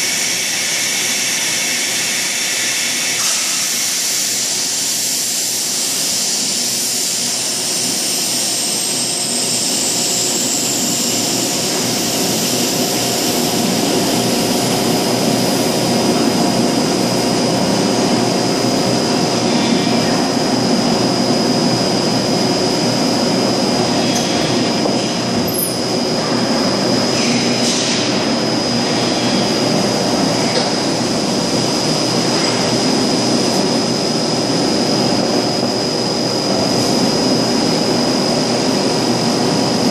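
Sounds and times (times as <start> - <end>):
hiss: 0.0 - 16.4, 27.1 - 28.3
industrial machine drone: 0.0 - 39.9.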